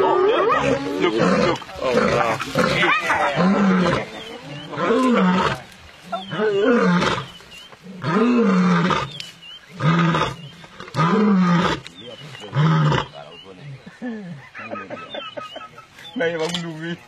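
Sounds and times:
lion roaring: 0:00.0 - 0:11.9.

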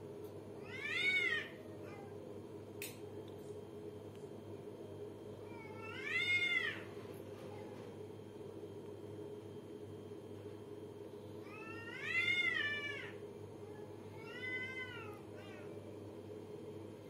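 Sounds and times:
steady low hum: 0:00.0 - 0:17.0
cats yowling: 0:00.6 - 0:02.1, 0:05.5 - 0:06.9, 0:11.4 - 0:13.2, 0:14.1 - 0:15.8.

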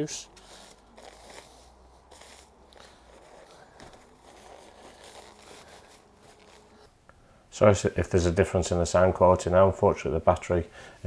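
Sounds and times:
paper and cling film rustling: 0:00.1 - 0:06.9.

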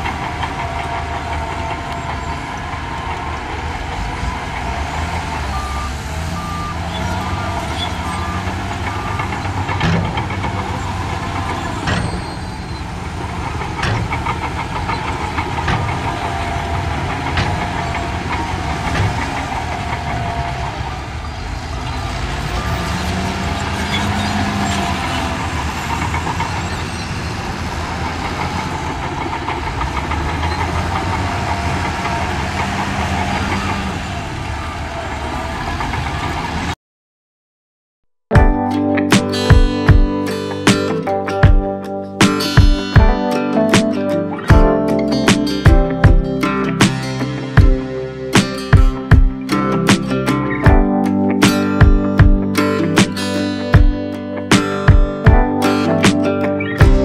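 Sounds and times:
reversing alarm beeping: 0:00.0 - 0:12.9
diesel engines revving: 0:00.0 - 0:36.8, 0:38.8 - 0:57.0.

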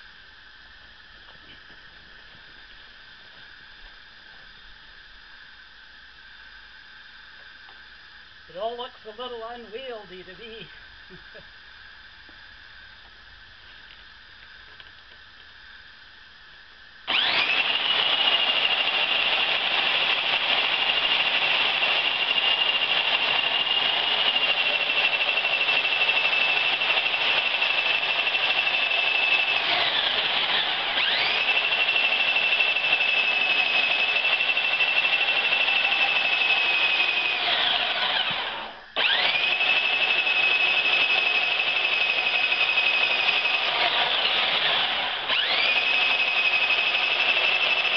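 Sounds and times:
saw motor whining: 0:17.1 - 0:47.9.

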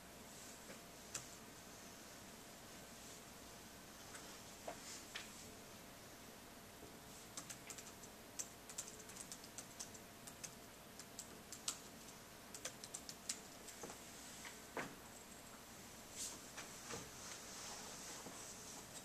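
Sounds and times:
laptop keyboard typing: 0:07.3 - 0:13.9.

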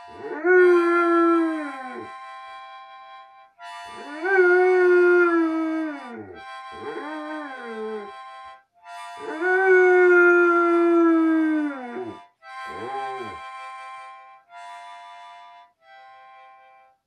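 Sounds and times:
harmonica chord: 0:00.0 - 0:17.0
dog howling: 0:00.1 - 0:02.1, 0:04.0 - 0:08.1, 0:09.2 - 0:13.4.

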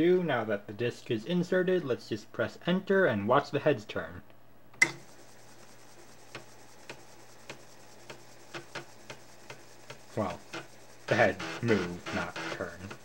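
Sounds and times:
floppy drive humming: 0:04.6 - 0:13.0.

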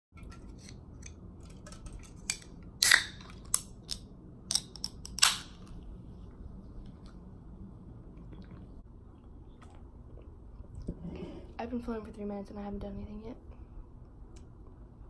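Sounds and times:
can opening crack: 0:02.0 - 0:05.7.

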